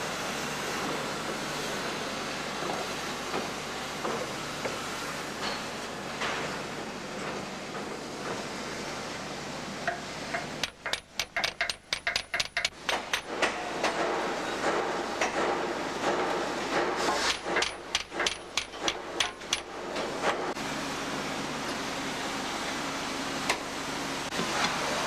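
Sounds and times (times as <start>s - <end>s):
workshop hum: 0.0s - 25.0s
hammer striking steel: 9.9s - 14.0s, 17.3s - 19.8s.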